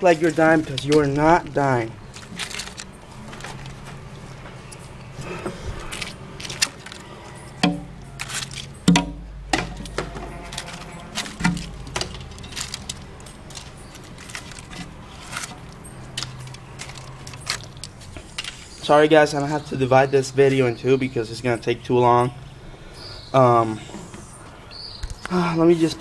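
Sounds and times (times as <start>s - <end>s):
objects clicking and knocking: 5.4s - 18.8s.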